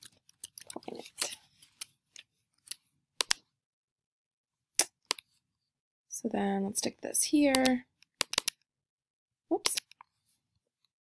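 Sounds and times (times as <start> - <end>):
keyboard typing: 2.6 - 3.4, 7.4 - 8.6
mouse clicks: 7.5 - 8.6.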